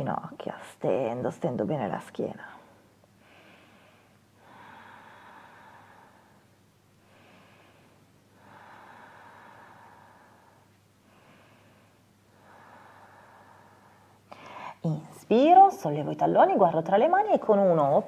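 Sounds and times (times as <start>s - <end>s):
person breathing slowly: 3.2s - 14.8s.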